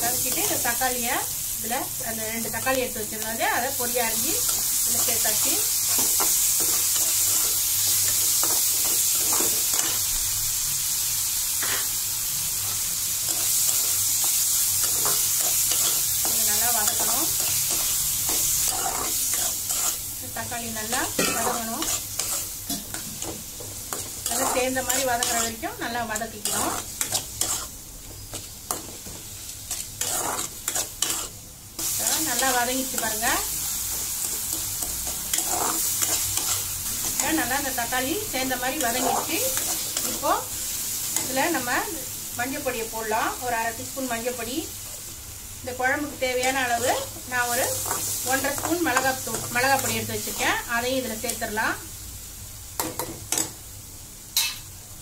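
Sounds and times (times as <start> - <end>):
food sizzling in hot oil: 0.0 - 55.0
metal spoon scraping pan: 14.9 - 20.0, 20.8 - 27.7, 29.7 - 33.2, 34.2 - 37.6.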